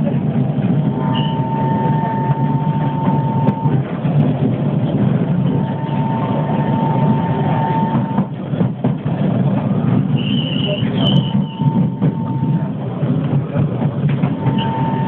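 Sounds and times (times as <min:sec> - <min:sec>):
train low rumble: 0:00.0 - 0:15.0
thin high whine: 0:00.9 - 0:03.9, 0:05.4 - 0:08.3, 0:11.0 - 0:12.8, 0:14.4 - 0:15.0.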